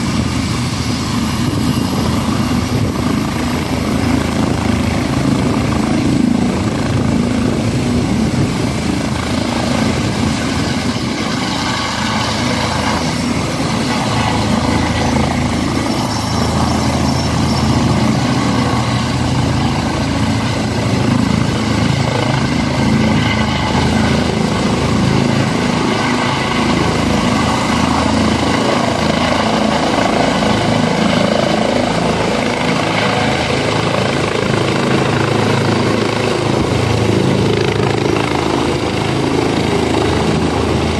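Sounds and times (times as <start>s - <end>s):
helicopter rotor and engine noise: 0.0s - 40.9s
high turbine whine: 0.0s - 40.9s.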